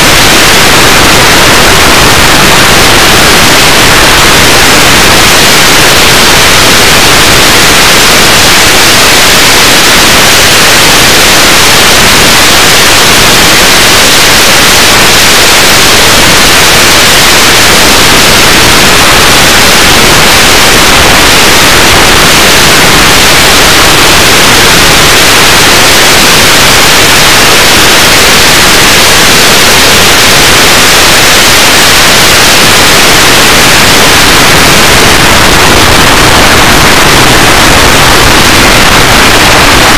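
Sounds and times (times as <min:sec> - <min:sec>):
radio static hiss: 0:00.0 - 0:39.9.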